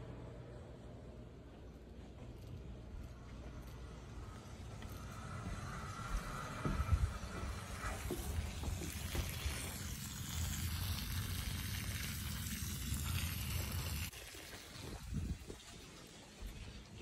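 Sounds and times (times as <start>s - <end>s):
hose water splashing on grass: 7.2s - 17.0s.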